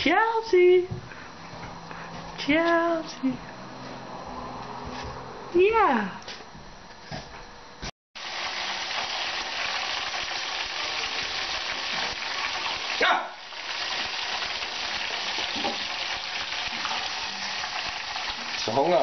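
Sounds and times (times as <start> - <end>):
food sizzling in hot oil: 8.2 - 19.0.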